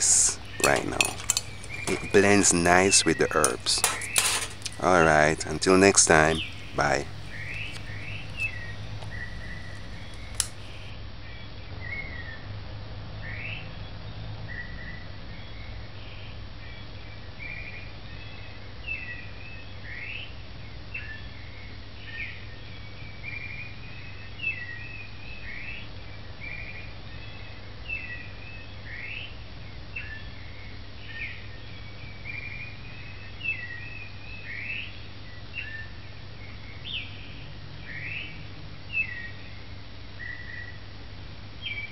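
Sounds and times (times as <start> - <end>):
bird chirping: 0.0 - 10.9
steady low hum: 0.0 - 10.9.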